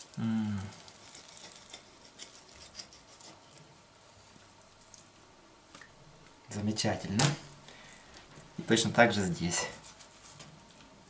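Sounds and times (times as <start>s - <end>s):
soft wet handling sounds: 0.0s - 11.0s
person humming: 0.1s - 0.9s.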